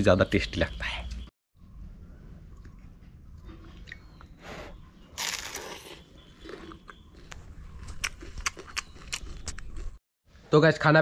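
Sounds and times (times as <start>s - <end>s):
person biting and chewing bread: 5.2s - 10.0s.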